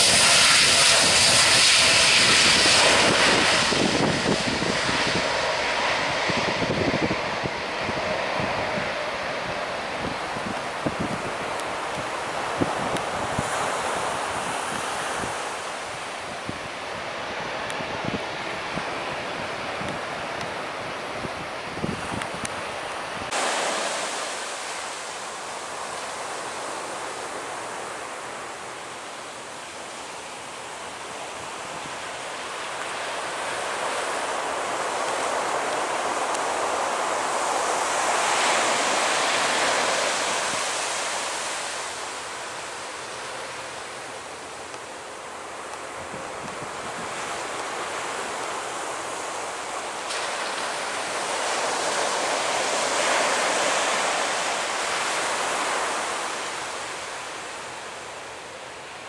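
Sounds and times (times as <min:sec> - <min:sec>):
wind on microphone: 0:00.0 - 0:27.9, 0:45.8 - 0:57.8
surf on beach: 0:00.0 - 0:59.0.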